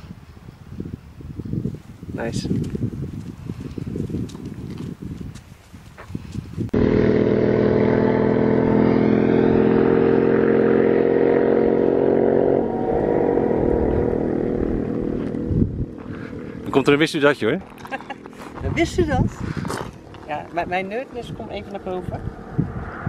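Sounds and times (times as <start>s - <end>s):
vehicle engine passing by: 6.8s - 19.0s, 21.2s - 23.0s.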